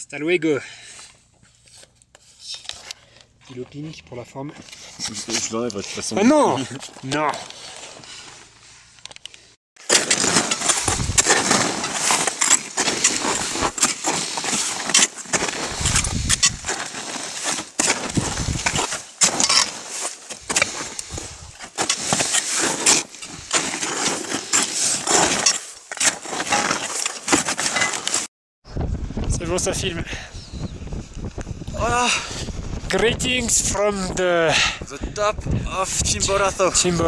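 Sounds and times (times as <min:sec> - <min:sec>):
boots crunching on snow: 0:09.8 - 0:28.3
microphone rubbing and buffeting: 0:10.8 - 0:11.3, 0:15.6 - 0:16.7, 0:18.1 - 0:18.8, 0:28.7 - 0:29.5, 0:30.3 - 0:33.4.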